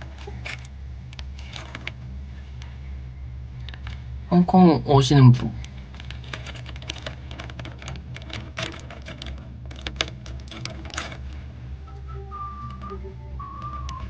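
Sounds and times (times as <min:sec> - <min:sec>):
low steady hum: 0:00.0 - 0:14.0
light clicks and taps: 0:03.6 - 0:04.1
steady high tone: 0:11.5 - 0:14.0.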